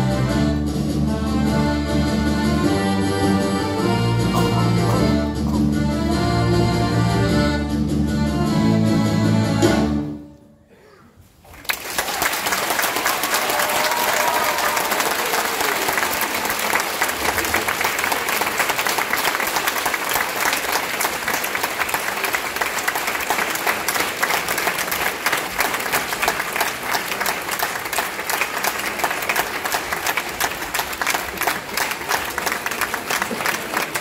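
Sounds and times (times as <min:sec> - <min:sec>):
audience applauding: 0:11.4 - 0:34.0.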